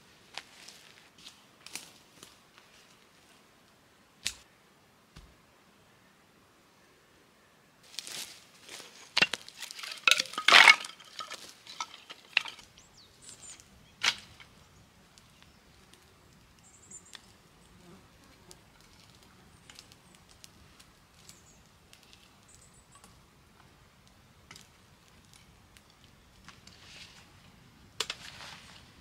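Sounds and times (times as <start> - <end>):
campfire crackling: 7.9 - 29.0.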